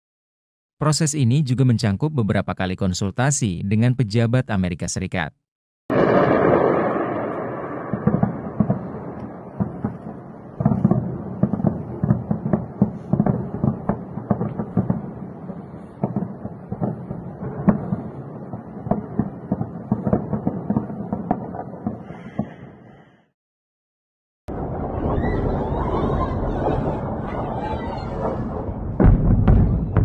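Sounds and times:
distant anti-aircraft gunfire: 5.9 - 22.7, 26.5 - 30.0.

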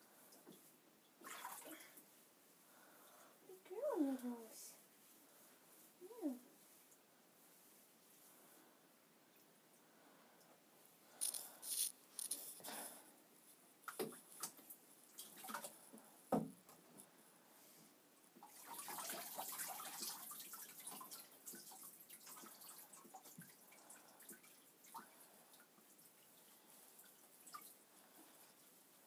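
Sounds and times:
water splashing and dripping: 0.3 - 2.1, 13.8 - 16.0, 18.4 - 28.8.

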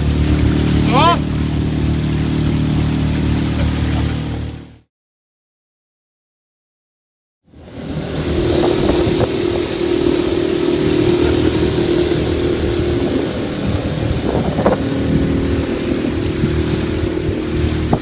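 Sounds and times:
outboard motor running: 0.0 - 4.9, 7.5 - 18.0
rushing water: 0.0 - 4.9, 7.5 - 18.0
wind noise: 7.6 - 18.0.

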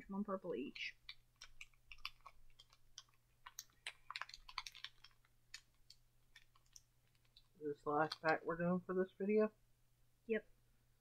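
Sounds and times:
candies being chewed: 0.8 - 8.4.

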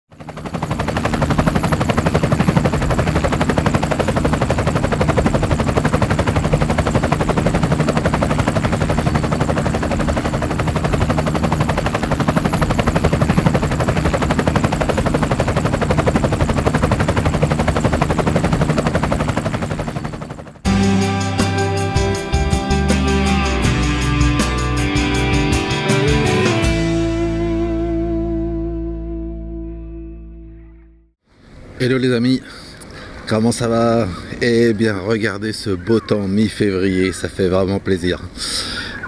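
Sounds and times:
engine running with rapid pulsing: 0.1 - 20.8.

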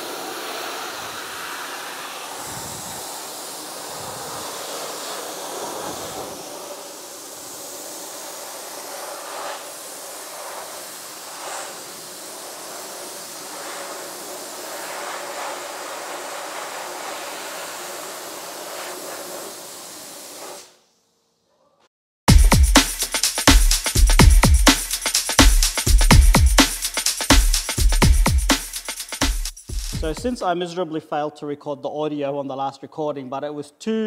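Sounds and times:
dry ice blaster hissing: 0.0 - 20.9, 22.3 - 30.4
drum and bass music: 22.3 - 30.4.

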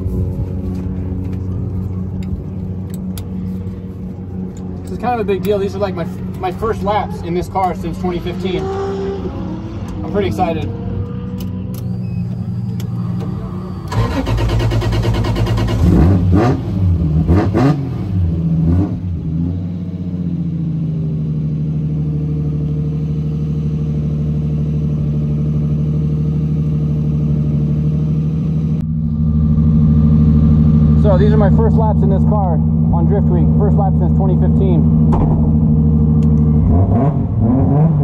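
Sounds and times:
car engine revving: 0.0 - 38.0.

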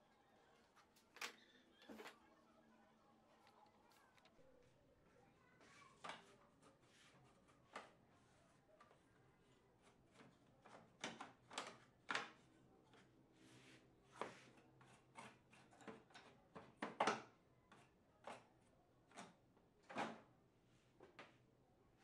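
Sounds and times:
light clicks and knocks of printer parts: 0.6 - 2.2, 3.4 - 4.4, 6.0 - 8.1, 9.8 - 13.1, 14.2 - 20.3.

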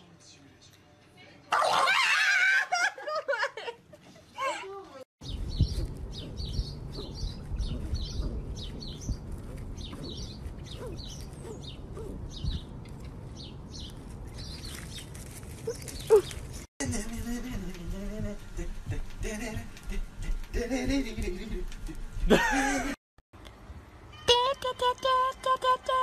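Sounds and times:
small birds chirping: 5.2 - 16.7
wind rumble on microphone: 5.2 - 22.4.

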